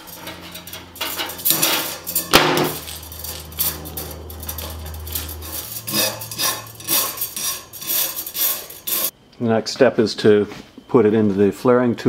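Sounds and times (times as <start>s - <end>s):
metal tubing scraping and clinking: 0.0s - 9.1s.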